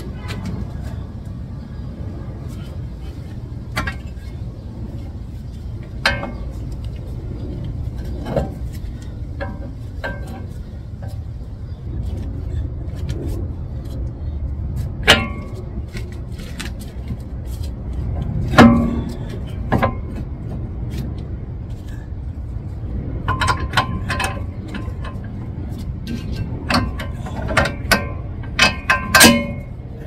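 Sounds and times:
steady low rumble: 0.0 - 30.0
metallic clanks and knocks: 3.7 - 4.4, 5.9 - 6.6, 8.0 - 11.3, 18.4 - 20.6, 23.2 - 29.8.

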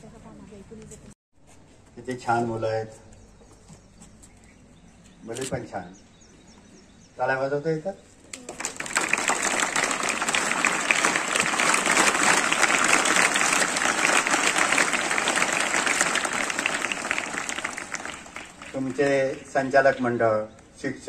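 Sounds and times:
children clapping: 8.3 - 20.0.

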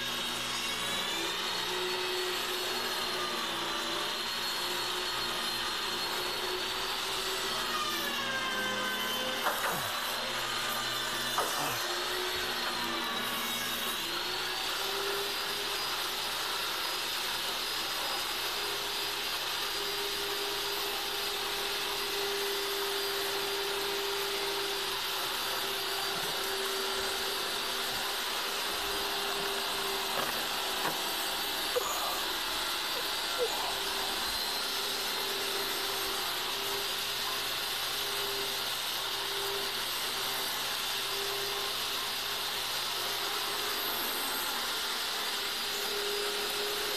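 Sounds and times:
motor whirring: 0.0 - 16.0, 19.7 - 37.0.

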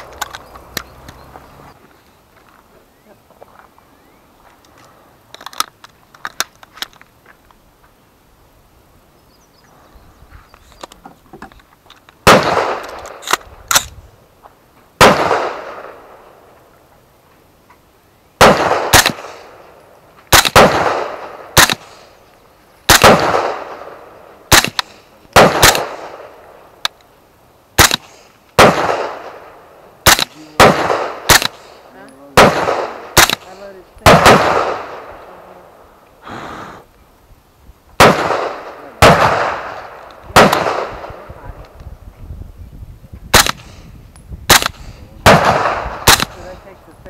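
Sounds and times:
rifle gunshots with rolling echo: 12.2 - 14.0, 15.0 - 16.6, 18.4 - 22.2, 22.8 - 26.9, 27.7 - 36.0, 38.0 - 41.8, 43.3 - 47.0
sharp short gunshots: 12.2 - 14.0, 15.0 - 16.1, 18.4 - 19.6, 20.3 - 22.1, 22.9 - 26.4, 27.8 - 35.2, 38.0 - 41.4, 43.3 - 43.9, 44.5 - 46.7.

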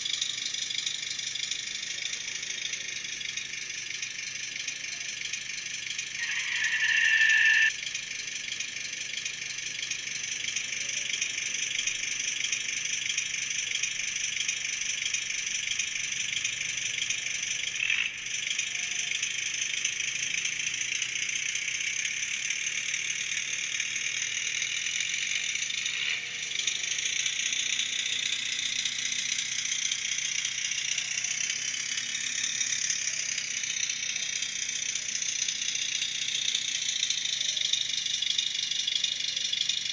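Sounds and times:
model diesel engine chugging: 0.0 - 39.9
brief louder tone: 6.2 - 7.7.

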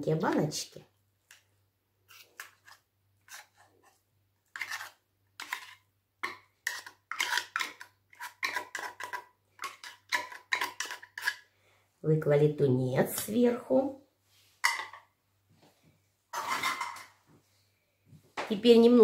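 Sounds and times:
spoon scraping inside tin can: 2.1 - 11.5, 16.3 - 17.1.

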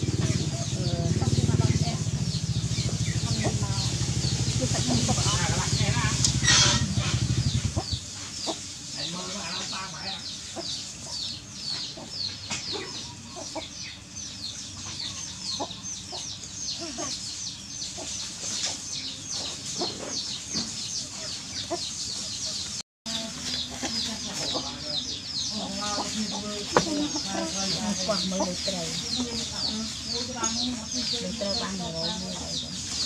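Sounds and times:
low rumble: 0.0 - 8.1
chicks peeping: 0.0 - 33.0.

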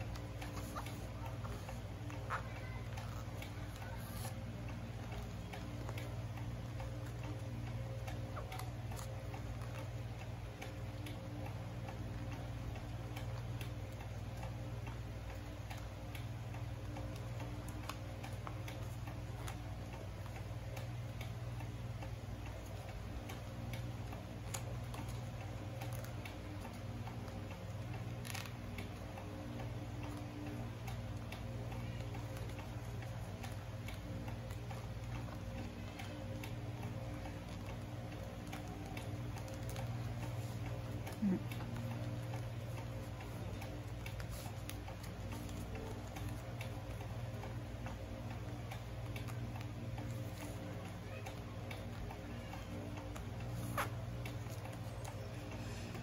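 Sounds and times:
paper being folded: 53.1 - 54.9.

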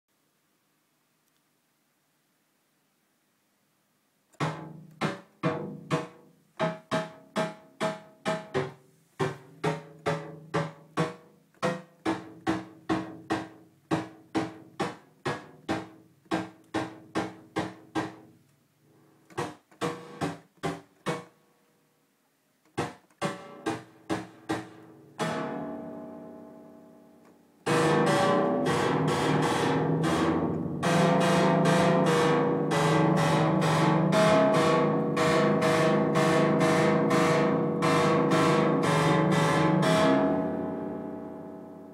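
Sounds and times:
bright buzzing synthesizer sound: 27.7 - 40.9
synthesizer plucky notes: 27.7 - 41.9.

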